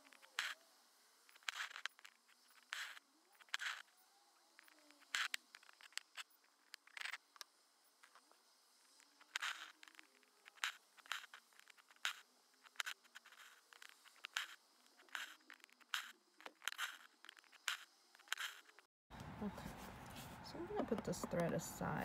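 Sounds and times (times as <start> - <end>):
small clicks: 1.3 - 3.9, 4.6 - 19.3
thread rasping through cloth: 1.3 - 3.9, 4.6 - 18.9.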